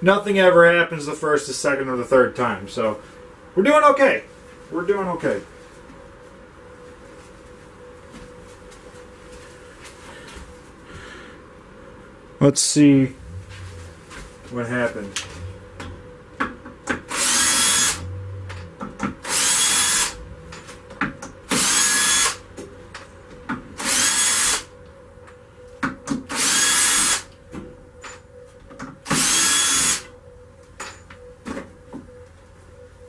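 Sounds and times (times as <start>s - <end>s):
cordless drill drilling into wood: 17.1s - 18.0s, 19.3s - 20.2s, 21.6s - 22.4s, 23.8s - 24.6s, 26.3s - 27.2s, 29.1s - 30.0s.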